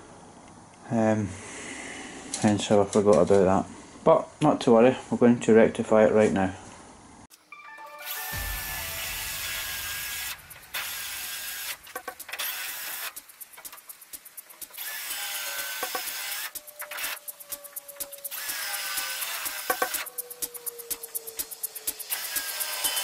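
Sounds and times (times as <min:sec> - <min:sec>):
drill cutting through steel: 0:08.0 - 0:13.2, 0:14.7 - 0:17.3, 0:18.2 - 0:20.1, 0:21.8 - 0:23.0
drill clicks: 0:10.8 - 0:13.8, 0:14.7 - 0:17.3.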